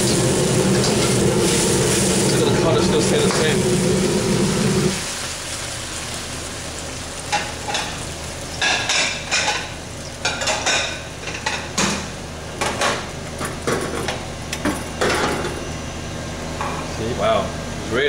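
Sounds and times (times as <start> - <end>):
food sizzling in a wok: 0.0 - 14.4.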